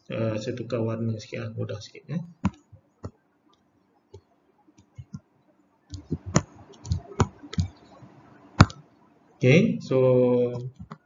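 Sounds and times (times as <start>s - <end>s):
computer mouse clicks: 5.9s - 8.0s, 10.6s - 11.0s.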